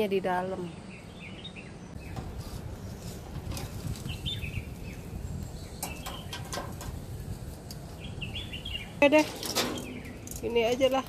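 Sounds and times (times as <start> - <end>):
birds chirping: 0.0 - 11.0
tongs clicking on wire grill basket: 9.1 - 11.0.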